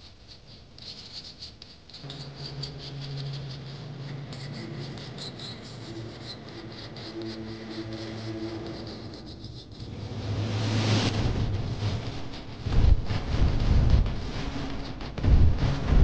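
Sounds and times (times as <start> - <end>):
low motor hum: 9.9 - 16.0.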